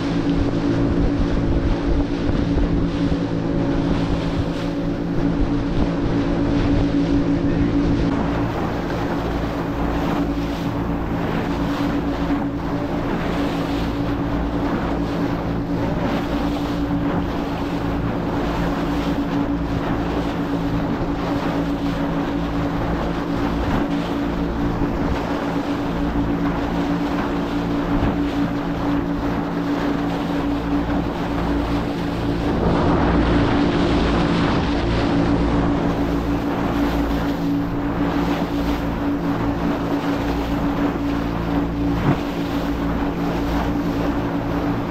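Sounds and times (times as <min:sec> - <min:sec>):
motorboat engine drone: 0:00.0 - 0:44.9
water rushing: 0:00.0 - 0:44.9
wind on microphone: 0:00.0 - 0:44.9.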